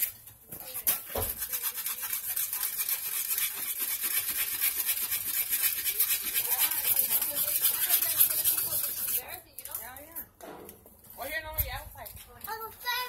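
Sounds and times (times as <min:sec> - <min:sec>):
hand scrubbing painted steel: 0:00.0 - 0:09.8.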